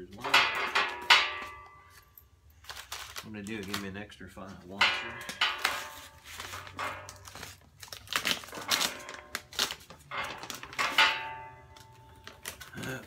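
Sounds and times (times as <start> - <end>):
plastic bag crinkling: 2.5 - 4.0, 5.2 - 13.0.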